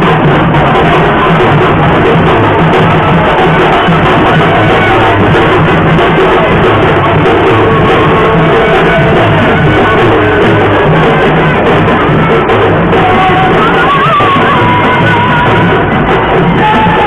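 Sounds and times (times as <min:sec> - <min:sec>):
loud music: 0:00.0 - 0:17.0.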